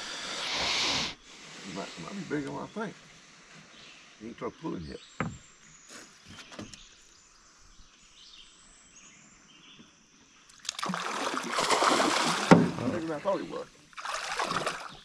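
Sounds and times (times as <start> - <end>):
fish splashing in water: 10.6 - 13.2, 13.9 - 15.0.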